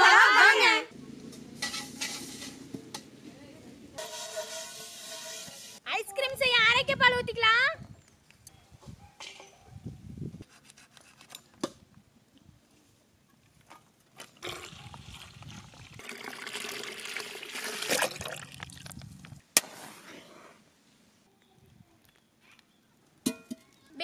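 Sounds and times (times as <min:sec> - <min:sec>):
milk pouring into a metal pot: 0:14.4 - 0:18.9.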